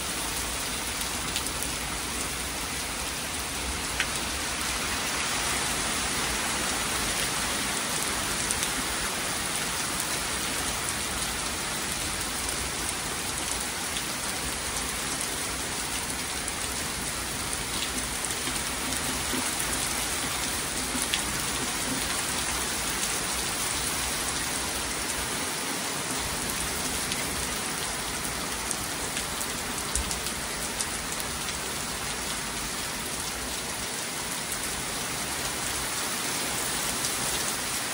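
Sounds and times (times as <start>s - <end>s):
heavy rain on trees: 0.0s - 37.9s
raindrops ticking close by: 5.5s - 25.2s, 26.2s - 33.4s.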